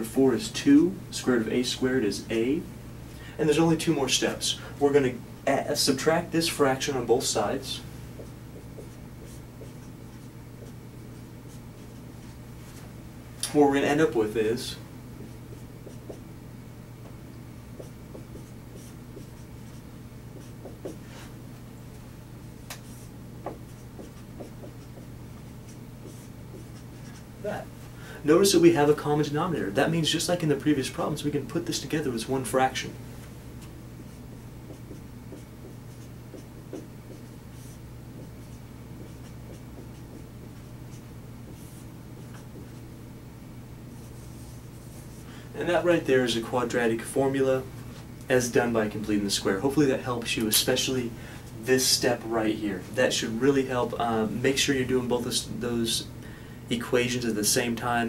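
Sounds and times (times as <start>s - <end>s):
steady low hum: 0.0s - 58.0s
marker scratching on whiteboard: 8.2s - 12.4s, 15.2s - 16.3s, 17.7s - 21.3s, 22.7s - 27.3s, 33.6s - 42.9s, 43.9s - 45.3s.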